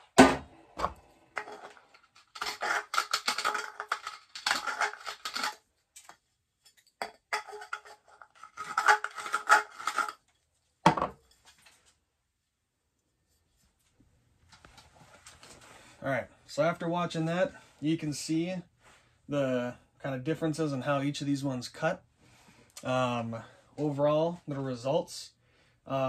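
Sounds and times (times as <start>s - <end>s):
metal scraping on copper pipe: 1.4s - 10.2s.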